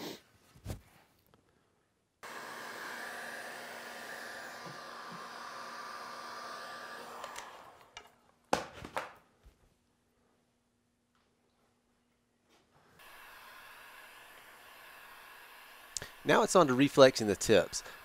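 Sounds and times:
heat gun blowing: 2.2s - 8.2s, 13.0s - 18.0s.

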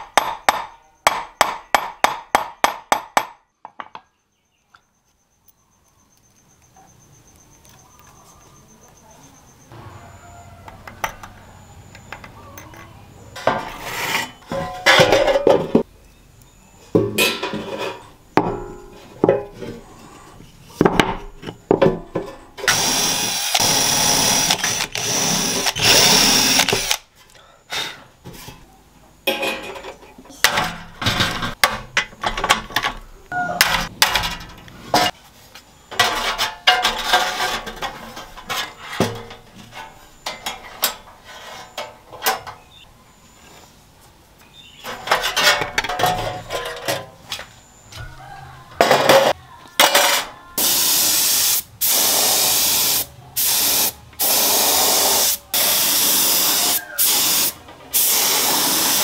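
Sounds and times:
tools clattering: 12.0s - 15.8s, 35.9s - 42.6s, 44.9s - 47.2s
power tool running: 22.7s - 27.0s.

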